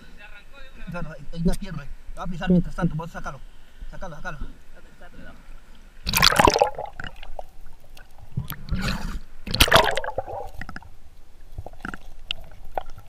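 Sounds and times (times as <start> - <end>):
water sloshing and gurgling: 5.4 - 13.0
water splashing: 5.8 - 13.0.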